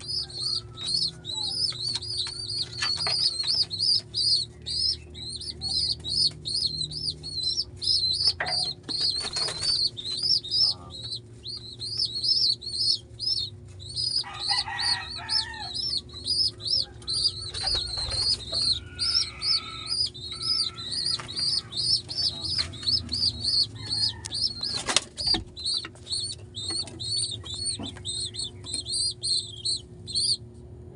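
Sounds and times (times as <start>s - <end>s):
squabs peeping: 0.0s - 30.4s
wing flapping: 8.9s - 10.5s, 20.5s - 26.3s.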